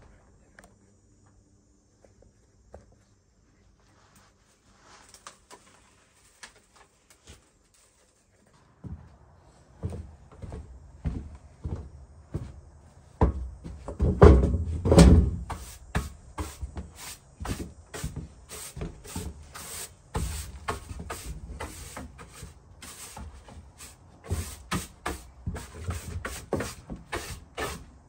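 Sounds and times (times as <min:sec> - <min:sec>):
knocks and clunks: 0:13.2 - 0:15.6.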